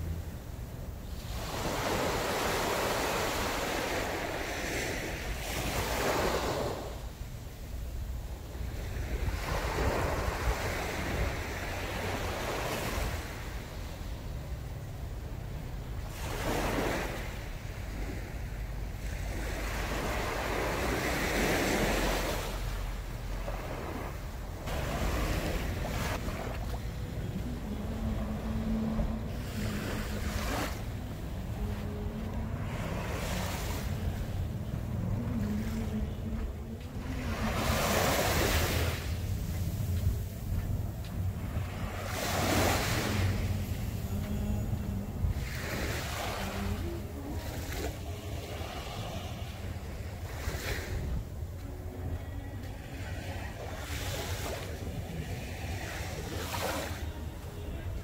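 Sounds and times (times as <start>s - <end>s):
wind rumbling on microphone: 0.0s - 52.2s
small waves breaking on a beach: 0.0s - 58.0s
low hum: 22.6s - 53.8s.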